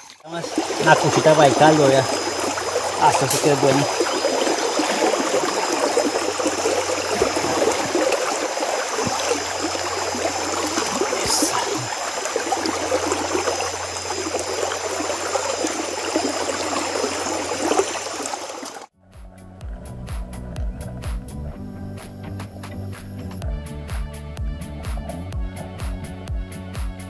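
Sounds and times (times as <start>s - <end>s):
river current rushing: 0.0s - 18.9s.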